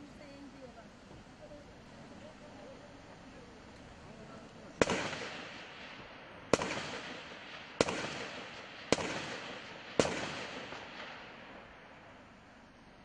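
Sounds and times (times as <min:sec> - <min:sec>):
gunshots echoing: 0:04.8 - 0:12.2.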